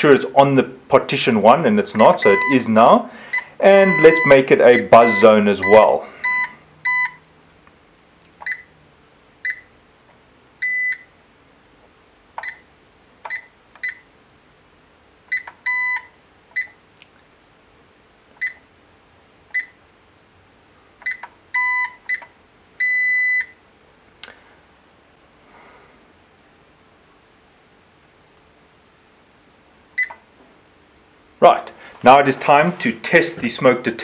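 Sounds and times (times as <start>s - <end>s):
alarm keypad beeps: 2.0s - 2.6s, 3.3s - 7.2s, 10.6s - 11.1s, 15.3s - 16.7s, 21.1s - 23.6s.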